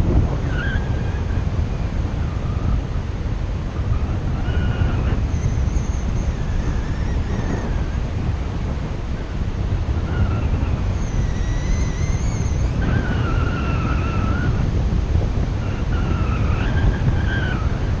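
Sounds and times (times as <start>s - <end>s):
wind buffeting microphone: 0.0s - 18.0s
thin wavering whistles: 3.8s - 8.1s, 10.0s - 14.7s, 15.6s - 17.9s.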